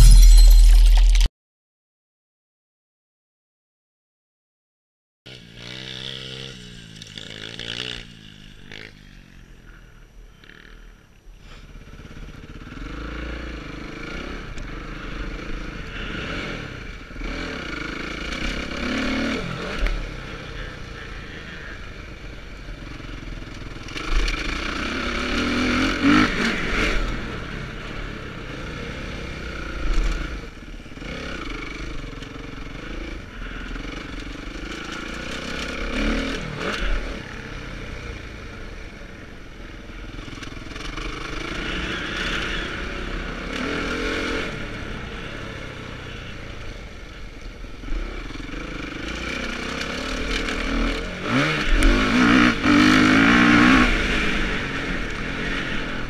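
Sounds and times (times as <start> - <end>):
motocross bike engine revving: 5.3 - 9.0, 11.9 - 22.0, 47.9 - 56.0.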